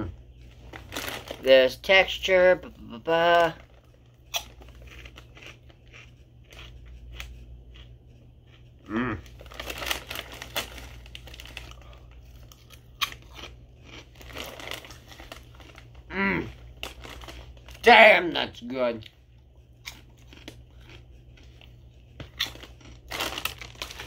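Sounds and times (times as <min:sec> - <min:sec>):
chewing and crunching snack: 0:00.1 - 0:18.0, 0:19.0 - 0:24.0
snack bag crinkling: 0:00.4 - 0:07.9, 0:09.2 - 0:18.0, 0:19.8 - 0:24.0
person humming: 0:08.8 - 0:09.3, 0:16.1 - 0:16.5.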